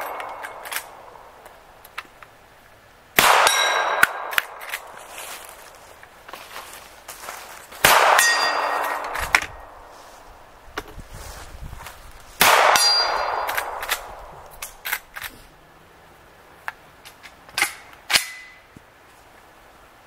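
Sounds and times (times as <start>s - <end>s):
steel target ringing: 3.2s - 4.6s, 7.9s - 9.2s, 12.4s - 13.8s
rifle shots: 3.2s - 5.0s, 7.8s - 9.5s, 12.4s - 14.8s.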